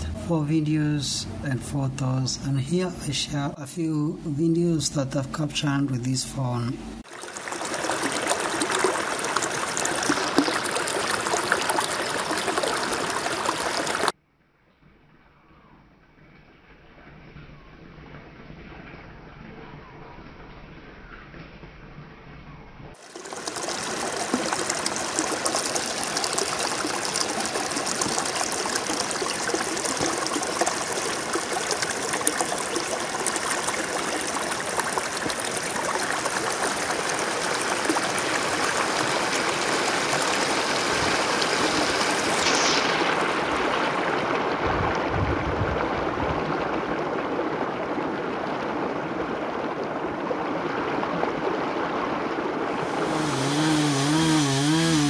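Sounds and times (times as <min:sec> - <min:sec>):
stream rushing over rocks: 0:07.0 - 0:14.1, 0:23.0 - 0:54.8.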